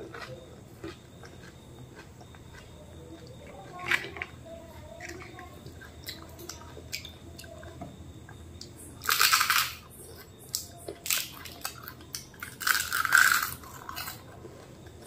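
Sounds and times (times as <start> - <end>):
wet crunching and slurping: 0.0 - 7.8, 8.6 - 15.0.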